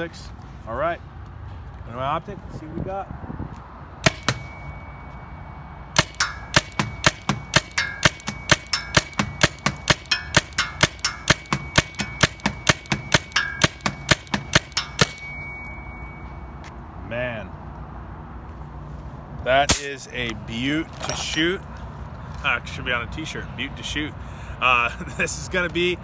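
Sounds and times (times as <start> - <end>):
paintball marker firing: 4.0 - 4.5, 6.0 - 15.3.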